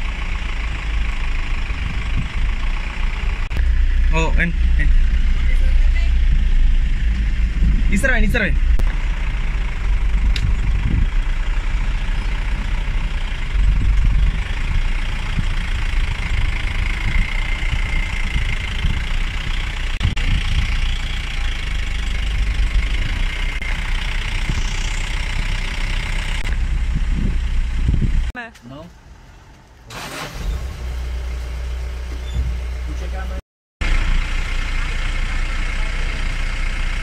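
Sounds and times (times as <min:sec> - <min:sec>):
vehicle engine idling: 0:00.0 - 0:37.0.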